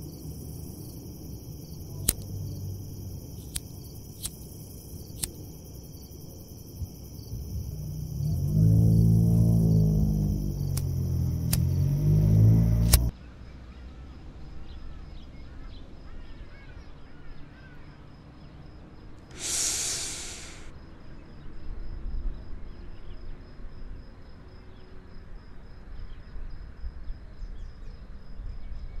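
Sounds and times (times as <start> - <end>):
burst of hiss: 19.3 - 20.7.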